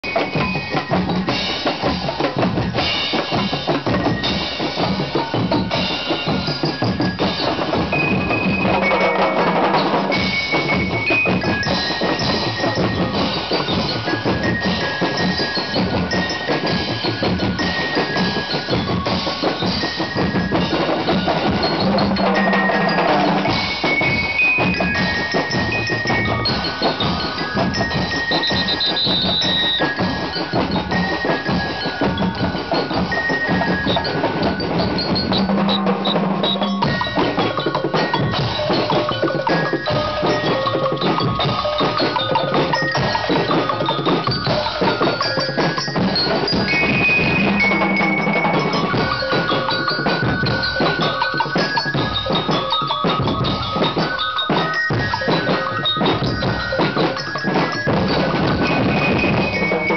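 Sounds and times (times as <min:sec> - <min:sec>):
bell lyres ringing high notes: 0:00.0 - 0:59.9
percussion band drumbeat: 0:00.0 - 0:59.9.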